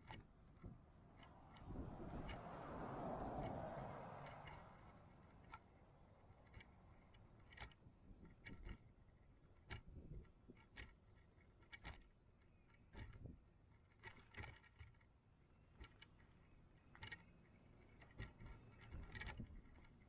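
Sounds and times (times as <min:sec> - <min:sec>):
small wheels clicking on concrete: 0:00.0 - 0:20.0
passing car road noise: 0:00.3 - 0:07.7
low rolling rumble: 0:00.4 - 0:07.2.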